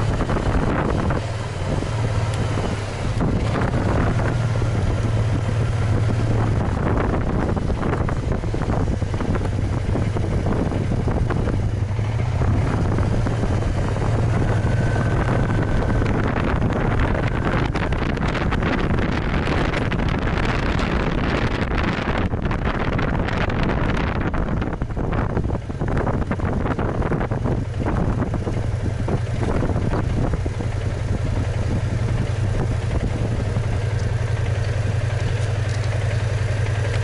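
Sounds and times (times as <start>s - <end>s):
scooter engine droning: 0.0s - 37.0s
wind noise on microphone: 0.0s - 37.0s.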